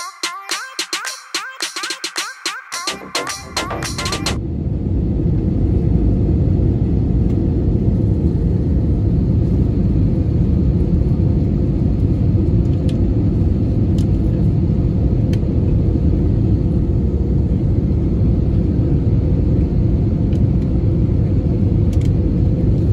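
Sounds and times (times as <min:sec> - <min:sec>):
airplane cabin engine rumble: 0:04.3 - 0:22.9.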